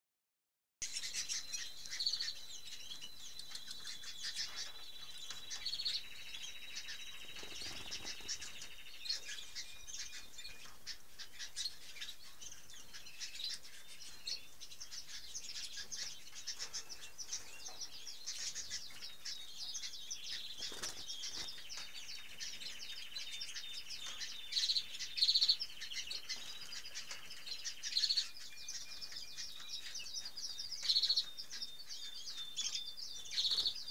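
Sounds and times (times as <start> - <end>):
canaries chirping and singing: 0.8 - 33.9
canary trills: 0.8 - 33.9.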